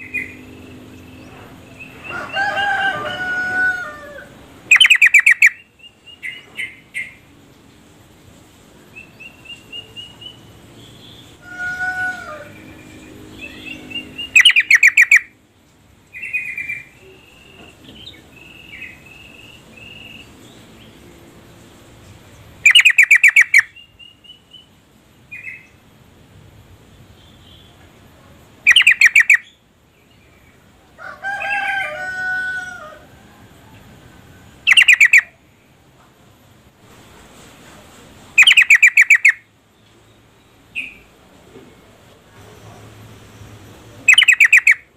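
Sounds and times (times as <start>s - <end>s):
bird chattering calls: 4.6s - 7.2s, 9.0s - 15.3s, 22.6s - 24.7s, 28.7s - 29.6s, 34.6s - 35.4s, 38.3s - 39.5s, 44.0s - 44.9s
soft whistled bird notes: 44.1s - 44.8s.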